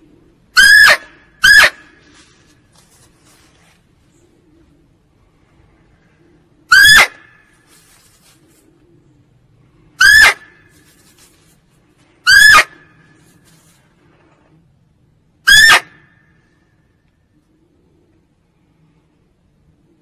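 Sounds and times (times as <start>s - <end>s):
deer barking: 0.6s - 2.0s, 10.0s - 10.6s, 12.2s - 12.8s, 15.4s - 16.0s.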